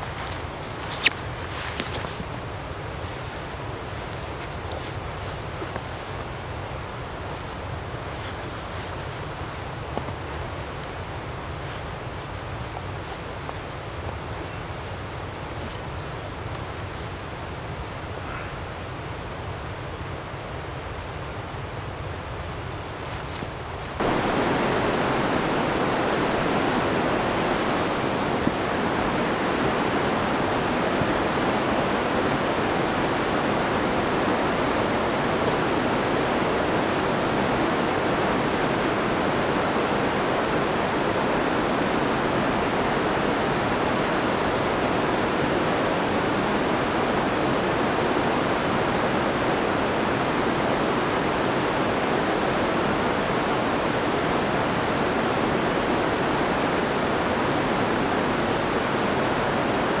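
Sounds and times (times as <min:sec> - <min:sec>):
waterfall rushing: 0:23.9 - 1:00.0.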